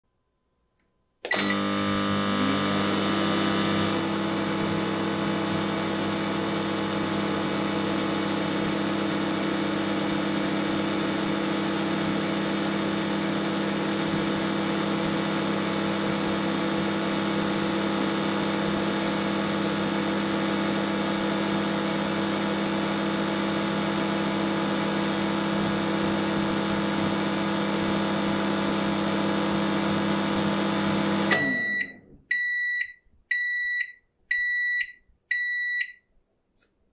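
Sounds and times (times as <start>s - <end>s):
microwave oven humming: 1.3s - 32.0s
short high beeps: 31.3s - 36.0s.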